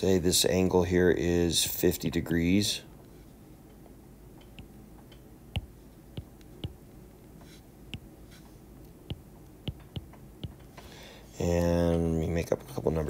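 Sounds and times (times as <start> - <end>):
stylus tapping on glass screen: 4.4 - 6.8, 7.9 - 8.1, 9.1 - 10.7.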